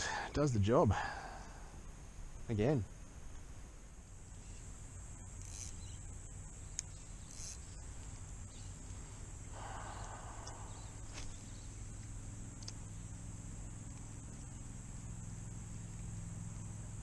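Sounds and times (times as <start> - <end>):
high-pitched insect chorus: 0.0 - 17.0
fishing reel clicks: 5.4 - 6.0, 6.7 - 7.7.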